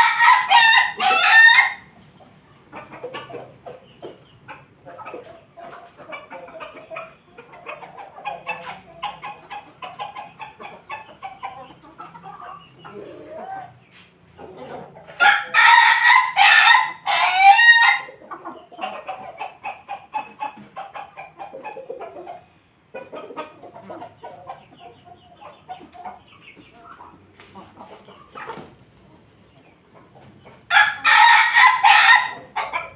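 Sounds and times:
rooster crowing: 0.0s - 1.8s, 15.2s - 18.1s, 30.7s - 32.4s
chickens clucking softly: 0.0s - 32.9s.

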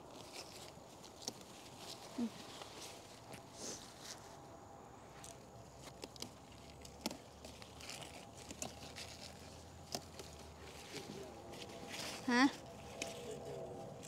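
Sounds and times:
faint low hum: 0.0s - 14.0s
rustling of garden plants: 0.0s - 14.0s
stems snapping: 0.2s - 2.2s, 5.2s - 12.1s, 12.9s - 14.0s.

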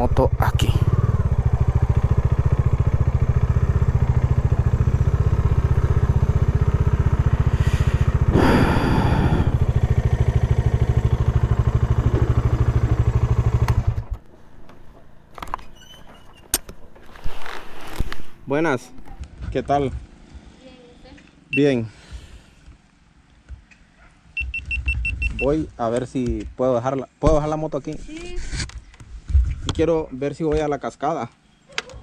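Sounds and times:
motorcycle engine running: 0.0s - 20.2s.

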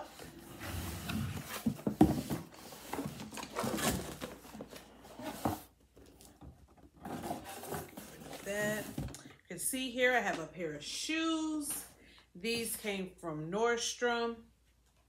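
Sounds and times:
cardboard rubbing and scraping: 7.0s - 9.0s.

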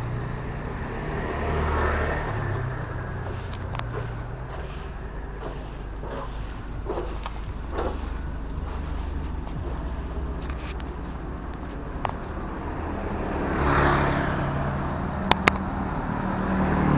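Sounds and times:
motor scooter passing: 0.0s - 16.9s
street low rumble: 0.0s - 16.9s.

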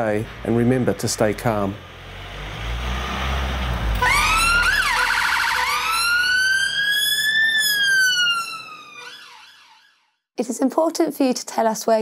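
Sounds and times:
ambulance siren: 3.9s - 10.1s.

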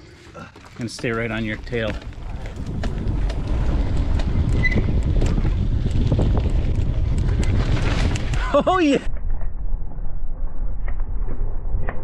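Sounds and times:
bike tyre noise on dirt: 0.0s - 12.0s
bike clicks and rattles: 0.5s - 8.7s
wind rumble on microphone: 1.2s - 12.0s.

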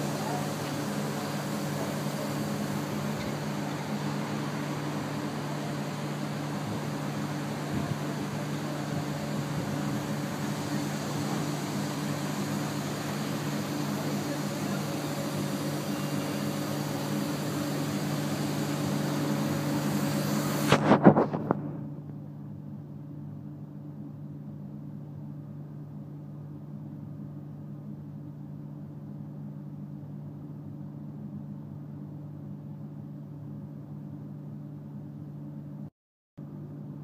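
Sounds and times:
electric train humming: 0.0s - 20.8s.

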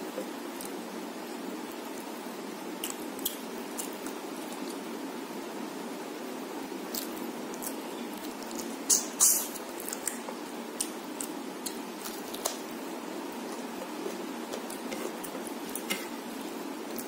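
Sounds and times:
person chewing: 2.8s - 4.8s, 6.9s - 12.7s, 13.3s - 17.0s.

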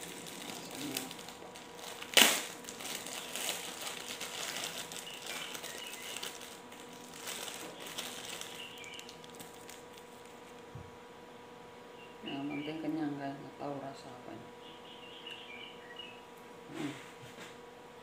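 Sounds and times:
plastic bag crinkling: 0.0s - 10.7s.

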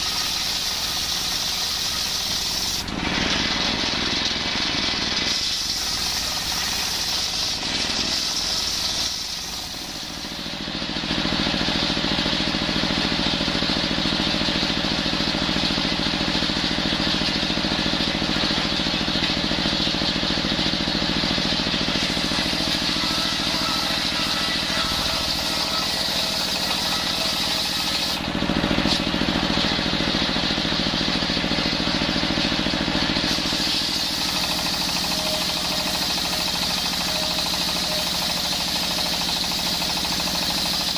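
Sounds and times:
circular saw cutting wood: 0.0s - 10.7s, 19.8s - 40.9s
diesel engine running: 0.0s - 40.9s.

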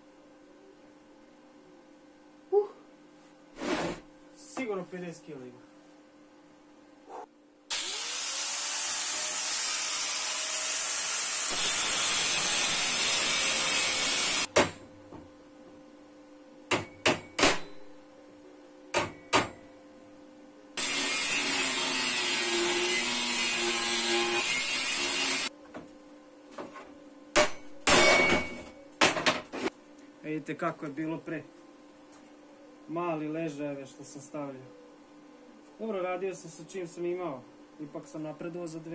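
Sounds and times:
power tool grinding metal: 7.7s - 14.5s, 20.8s - 25.5s
sharp metallic knocks: 16.7s - 17.9s.

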